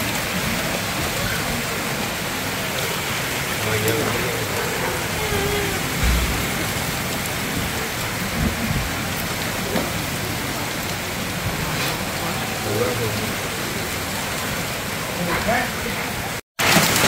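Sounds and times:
hail and rain on roofs: 0.0s - 17.0s
low thumps: 5.3s - 9.0s.

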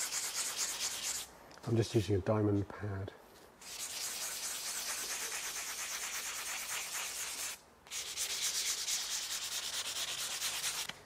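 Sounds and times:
sanding pad rubbing porcelain: 0.0s - 1.3s, 3.6s - 10.9s.

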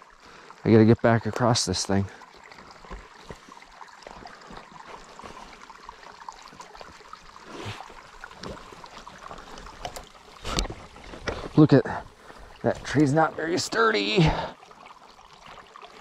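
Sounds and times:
stream water trickling: 0.0s - 16.0s
footsteps and poles knocking on logs: 2.5s - 5.6s, 8.3s - 11.6s.

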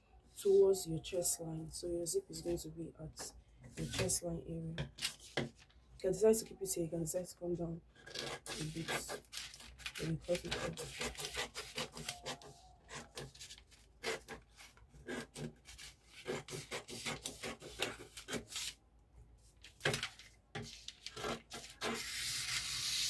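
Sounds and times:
scissors snipping paper: 8.2s - 18.8s
paper rustling: 8.6s - 12.6s, 13.2s - 13.9s, 19.4s - 22.8s.

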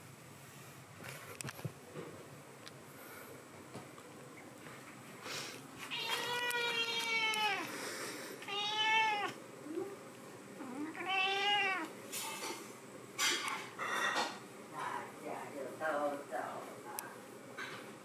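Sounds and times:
cat meowing: 5.9s - 7.7s, 8.4s - 9.4s, 10.8s - 11.9s.

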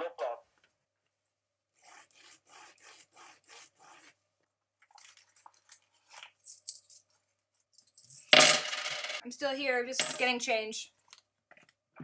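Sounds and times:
object rubbed with a rasp: 1.8s - 4.2s.

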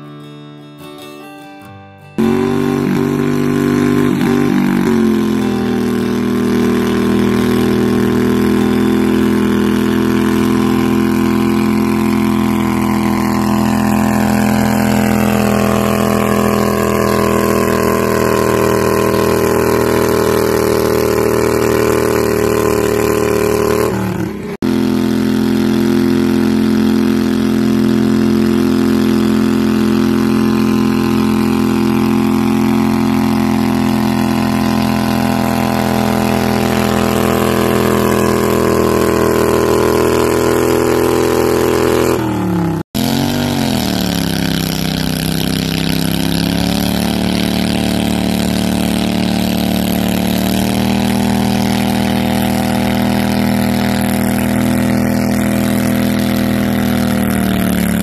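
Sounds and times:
garden tractor engine running hard: 2.2s - 58.0s.

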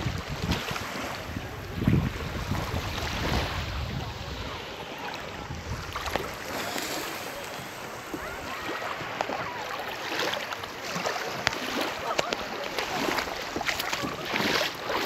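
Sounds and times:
seawater lapping at shoreline: 0.0s - 15.0s
small sharp splashes: 5.8s - 15.0s.

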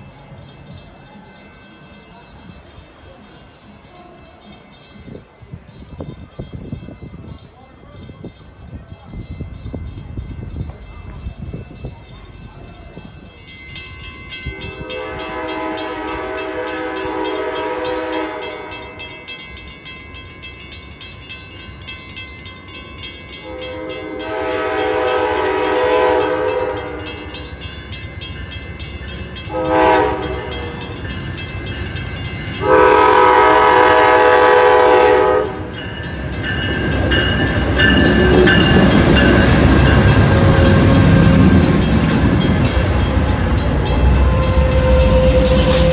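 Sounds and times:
crossing bell ringing: 0.0s - 45.9s
train engine and wheels rumbling: 0.0s - 45.9s
locomotive horn: 14.5s - 19.0s, 23.4s - 27.4s, 29.5s - 31.0s, 32.6s - 35.8s, 42.8s - 45.9s.

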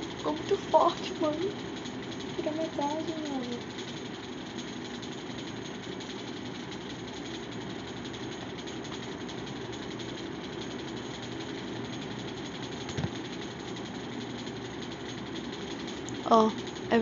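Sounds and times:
background hum and hiss: 0.0s - 17.0s.

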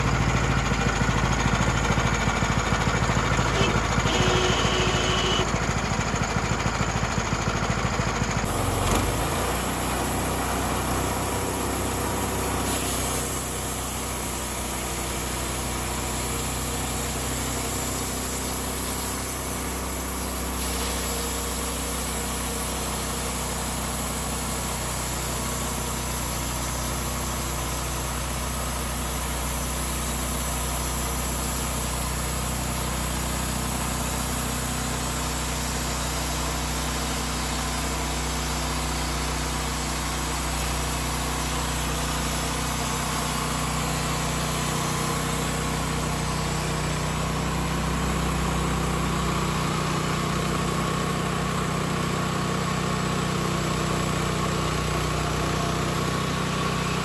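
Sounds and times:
engine running steadily: 0.0s - 57.0s
bandsaw blade cutting a log: 3.6s - 5.4s, 8.5s - 22.7s.

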